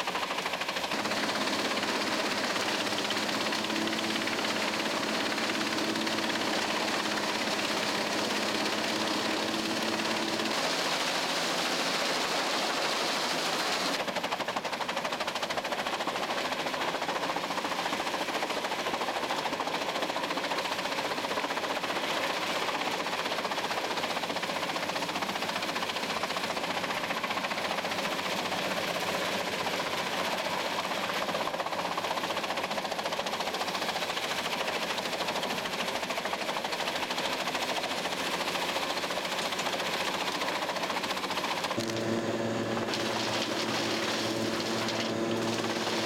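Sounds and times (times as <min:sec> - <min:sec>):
drum chipper chipping branches: 0:00.2 - 0:14.9, 0:33.6 - 0:46.0.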